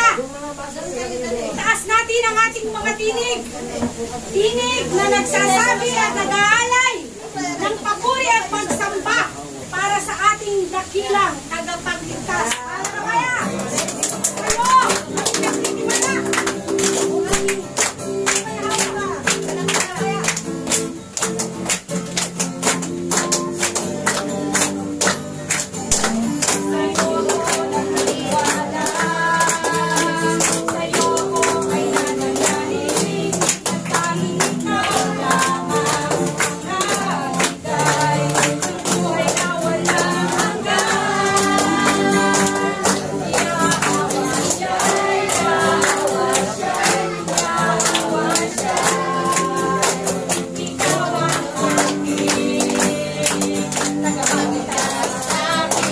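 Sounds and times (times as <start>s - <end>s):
group singing worship music: 12.3s - 55.9s
hand claps: 12.4s - 55.9s.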